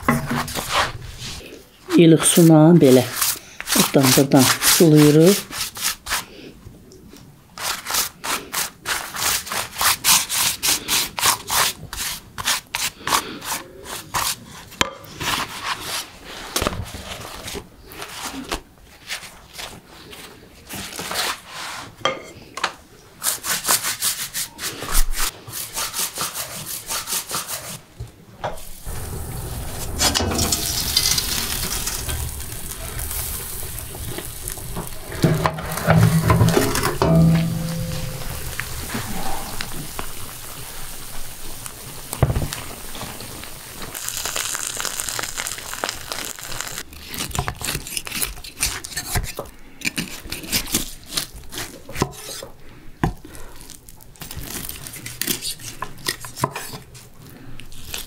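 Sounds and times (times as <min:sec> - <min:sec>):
pastry brush rubbing flatbread: 0:02.4 - 0:06.3, 0:07.6 - 0:14.7
oven hissing: 0:28.5 - 0:46.8.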